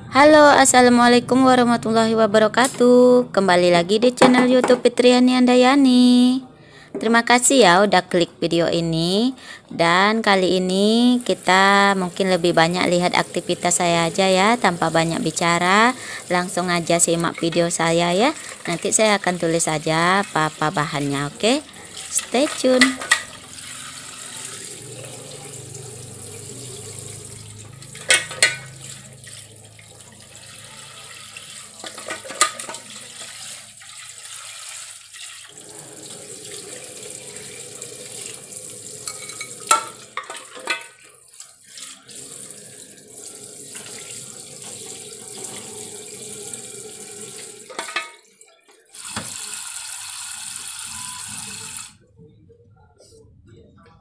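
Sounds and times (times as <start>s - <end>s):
pot knocking against sink: 4.2s - 4.9s, 22.4s - 23.4s, 27.9s - 28.8s
tap water running into pot: 10.7s - 52.0s.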